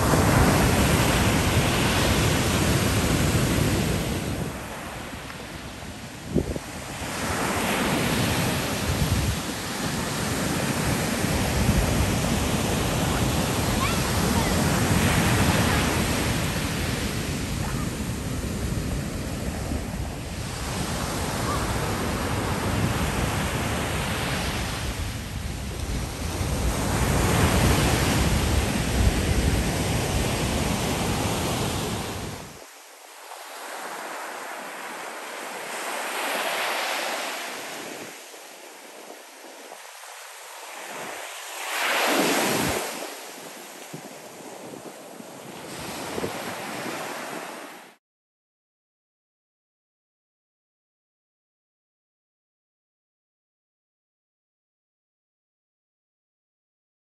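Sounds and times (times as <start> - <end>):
wind rumbling on microphone: 0.0 - 32.6, 42.1 - 47.4
ocean surf breaking: 0.0 - 48.0.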